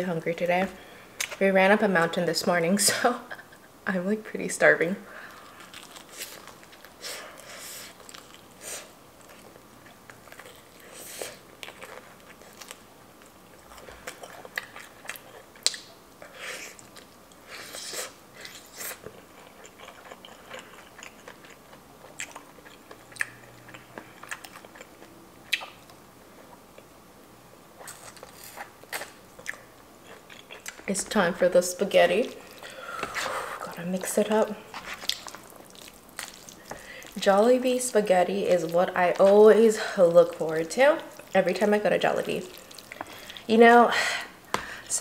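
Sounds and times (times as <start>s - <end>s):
person chewing crispy chicken: 5.2s - 8.6s, 9.2s - 26.0s, 27.8s - 30.8s, 34.6s - 37.2s.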